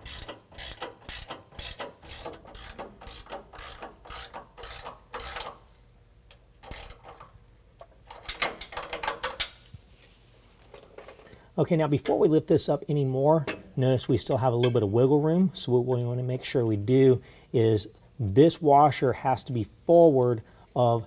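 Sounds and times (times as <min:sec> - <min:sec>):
ratcheting wrench clicking: 0:00.0 - 0:05.6, 0:06.6 - 0:07.3, 0:08.1 - 0:09.6.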